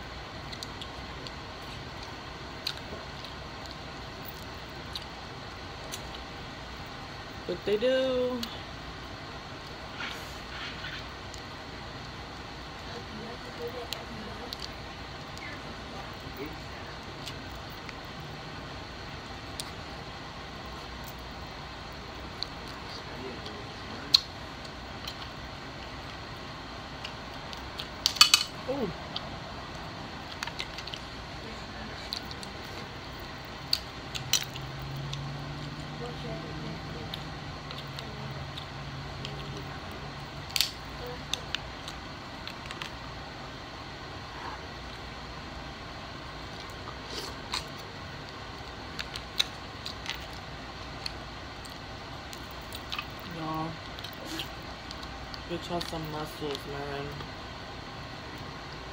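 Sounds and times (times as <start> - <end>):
steady background hiss: 0.0 - 58.9
shells cracking by hand: 27.0 - 28.6.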